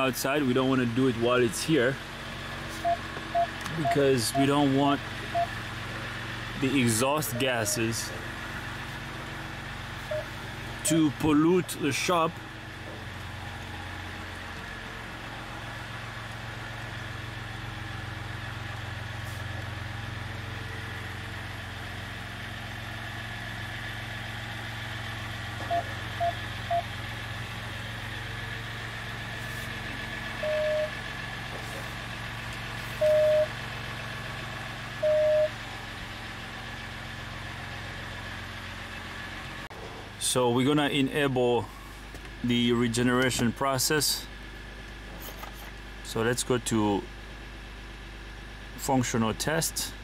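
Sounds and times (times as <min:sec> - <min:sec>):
diesel truck engine running: 0:00.0 - 0:50.0
dashboard chime beeps: 0:02.8 - 0:04.7, 0:05.3 - 0:05.5, 0:07.2 - 0:08.0, 0:10.1 - 0:10.3, 0:25.7 - 0:26.8, 0:30.4 - 0:31.0, 0:33.0 - 0:33.5, 0:35.0 - 0:35.6.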